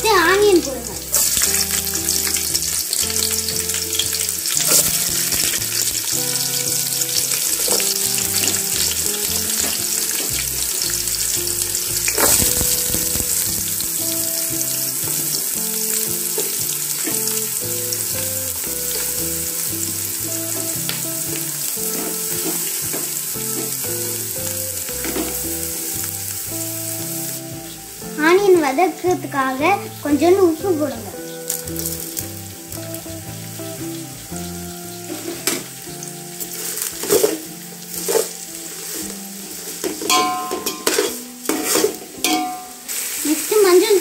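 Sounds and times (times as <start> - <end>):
onions sizzling in oil: 0.0 - 44.0.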